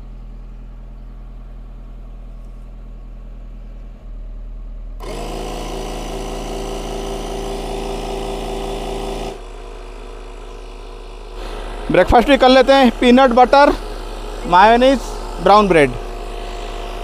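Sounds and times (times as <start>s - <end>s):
car engine idling: 0.0s - 17.0s
tyre inflator pumping: 5.0s - 17.0s.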